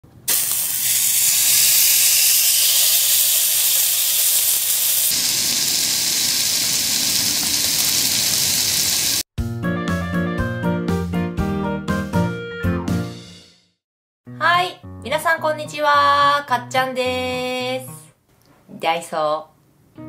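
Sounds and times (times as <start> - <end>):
steak sizzling on griddle: 0.3 - 9.3
keyboard music jingle: 9.4 - 13.4.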